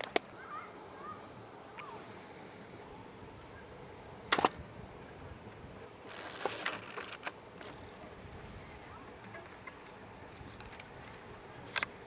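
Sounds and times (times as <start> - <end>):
film winding clicks: 6.1 - 8.2.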